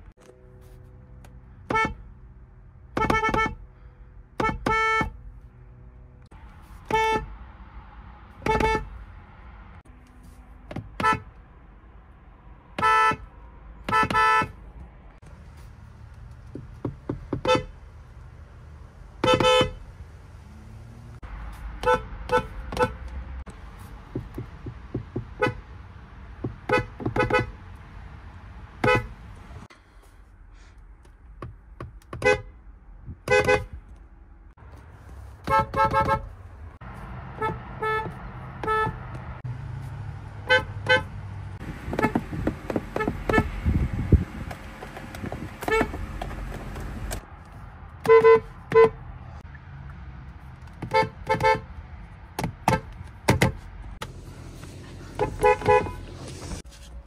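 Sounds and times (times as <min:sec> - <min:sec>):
car horn honks: 0:01.6 - 0:02.1, 0:02.9 - 0:03.6, 0:04.4 - 0:05.2, 0:06.8 - 0:07.4, 0:08.4 - 0:09.0, 0:10.9 - 0:11.4, 0:12.8 - 0:14.6, 0:17.4 - 0:17.8, 0:19.2 - 0:19.9, 0:21.8 - 0:23.1, 0:25.3 - 0:25.7, 0:26.5 - 0:27.6, 0:28.8 - 0:29.2, 0:32.2 - 0:32.5, 0:33.2 - 0:33.8, 0:35.4 - 0:36.3, 0:37.3 - 0:39.2, 0:40.4 - 0:41.2, 0:41.8 - 0:42.3, 0:42.9 - 0:43.6, 0:45.6 - 0:46.1, 0:48.0 - 0:49.0, 0:50.8 - 0:51.7, 0:55.0 - 0:56.6.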